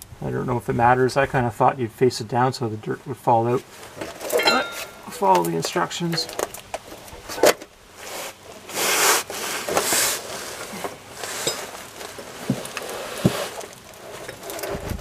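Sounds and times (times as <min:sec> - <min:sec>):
steel bar scraping on cardboard: 0:07.4 - 0:15.0.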